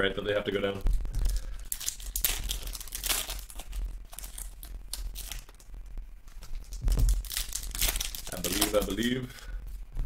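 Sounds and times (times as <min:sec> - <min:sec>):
foil wrapper crinkling and tearing: 0:01.1 - 0:05.7, 0:06.3 - 0:09.3.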